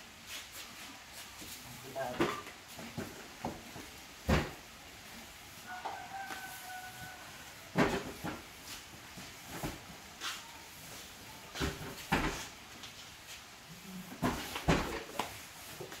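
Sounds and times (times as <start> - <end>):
boxes knocking and thudding: 2.0 - 4.8, 7.7 - 10.2, 11.5 - 12.6, 14.0 - 16.0.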